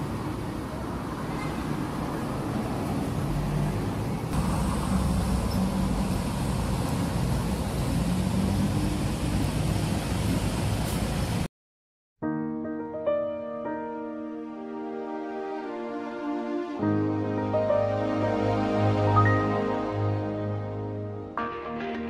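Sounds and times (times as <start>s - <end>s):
cars passing: 0.0s - 11.5s
road rumble: 0.0s - 11.5s.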